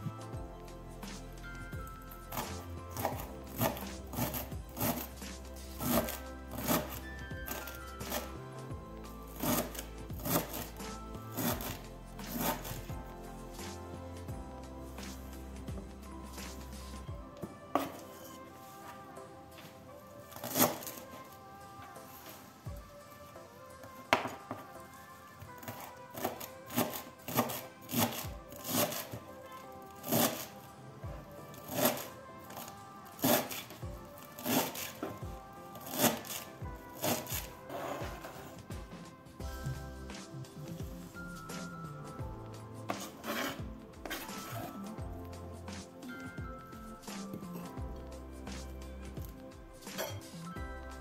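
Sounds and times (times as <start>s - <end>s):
background music: 0.0s - 51.0s
knife chopping on cutting board: 2.3s - 5.1s, 5.8s - 8.2s, 9.4s - 10.7s, 11.3s - 12.8s, 20.4s - 21.0s, 25.6s - 29.2s, 34.2s - 35.1s, 35.8s - 38.5s, 42.9s - 44.7s.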